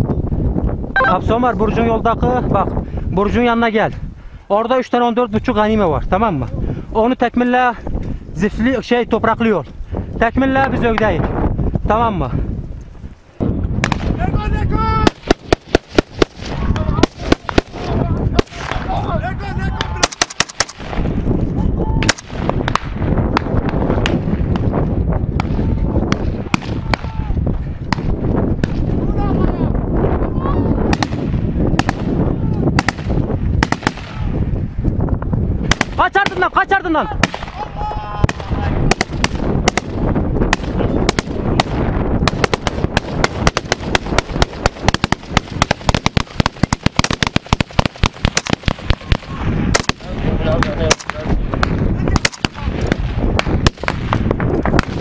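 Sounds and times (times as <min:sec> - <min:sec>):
low wind rumble on microphone: 0:00.0 - 0:55.0
rifle shots: 0:20.0 - 0:21.0, 0:32.8 - 0:34.2, 0:40.5 - 0:50.1.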